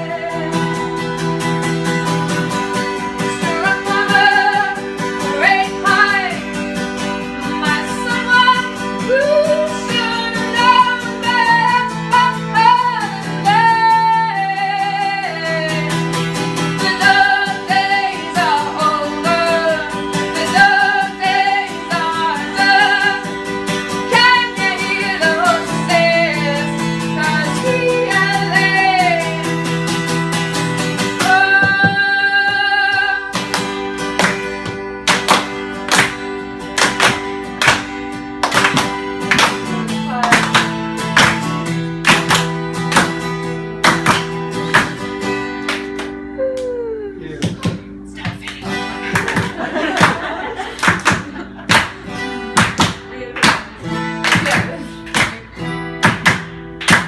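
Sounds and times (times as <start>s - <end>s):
woman singing: 0.0s - 1.1s, 3.1s - 6.6s, 7.4s - 16.0s, 16.6s - 29.6s, 31.0s - 33.5s, 39.8s - 40.7s, 52.2s - 55.8s
strummed acoustic guitar: 0.0s - 57.0s.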